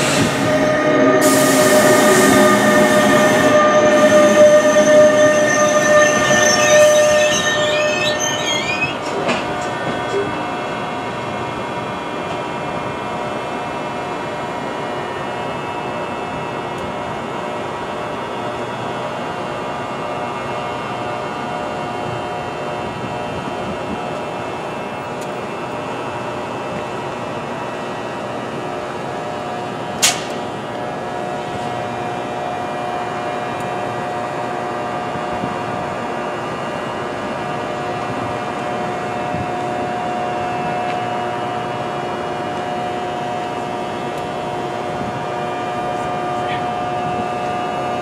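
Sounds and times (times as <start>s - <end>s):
electric locomotive hum: 0.0s - 48.0s
sharp click: 30.0s - 30.4s.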